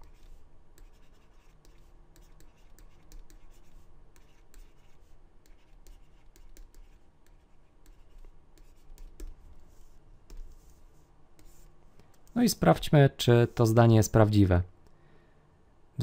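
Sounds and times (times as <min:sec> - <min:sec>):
stylus tapping and scratching: 0:00.0 - 0:12.7.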